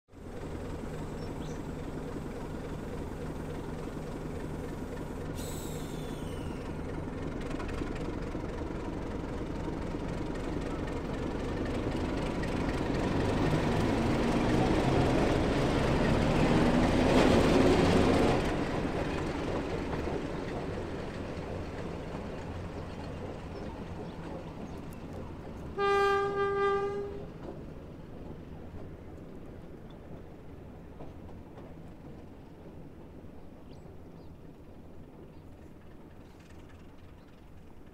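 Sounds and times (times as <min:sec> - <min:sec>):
diesel locomotive engine running: 0:00.1 - 0:37.9
locomotive horn blasts: 0:25.8 - 0:27.3.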